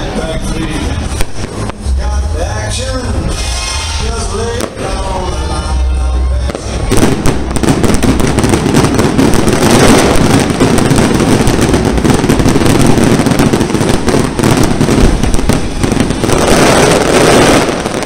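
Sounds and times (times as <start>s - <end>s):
fireworks bangs and crackling: 0.0s - 18.0s.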